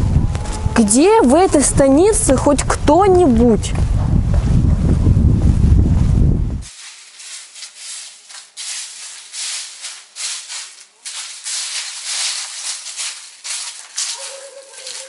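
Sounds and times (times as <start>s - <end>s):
footsteps crunching over dry leaves: 6.6s - 15.0s.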